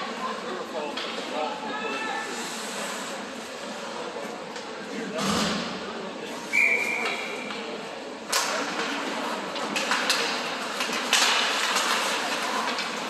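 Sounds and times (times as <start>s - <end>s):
hockey sticks and puck knocking: 8.3s - 13.0s.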